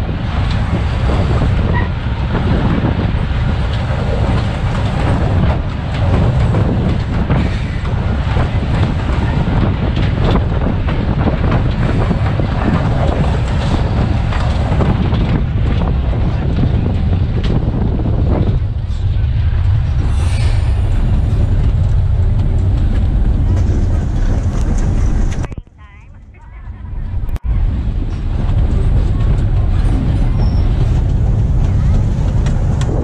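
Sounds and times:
wheels clattering over rail joints: 0.0s - 20.0s
diesel engine running: 18.6s - 25.6s.

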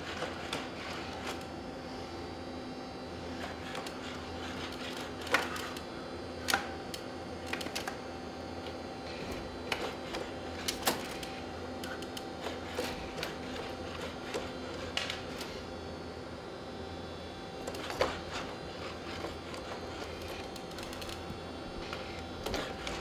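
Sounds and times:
robot motors humming and whirring: 8.6s - 15.7s, 17.5s - 23.0s.

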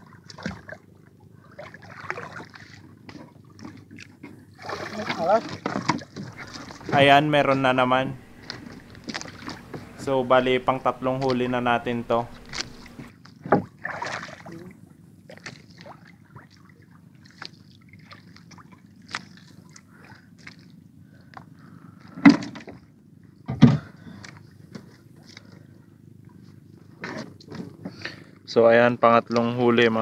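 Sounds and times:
steady low rumble: 6.3s - 13.1s.

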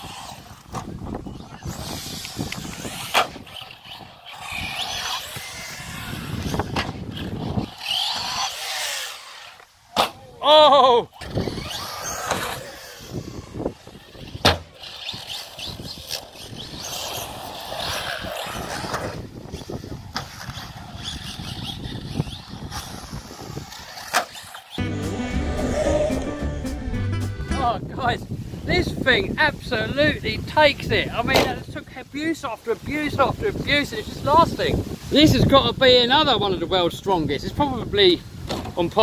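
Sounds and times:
rc truck motor whine: 0.0s - 9.8s, 11.1s - 24.8s
tyre noise on concrete: 0.0s - 10.4s, 11.2s - 24.8s
loud wavering pitched sound: 24.8s - 27.6s.

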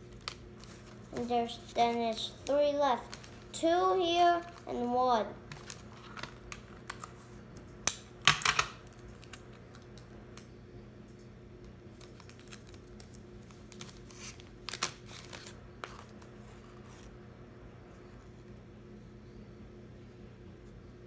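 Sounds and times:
paper and tape rustling: 0.0s - 4.9s, 5.5s - 7.3s, 11.9s - 17.1s.

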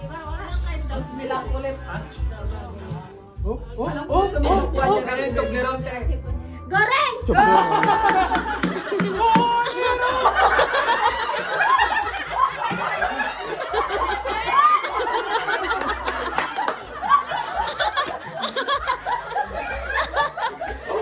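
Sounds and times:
excited voices overlapping: 6.7s - 21.0s
group of people laughing: 7.3s - 21.0s.

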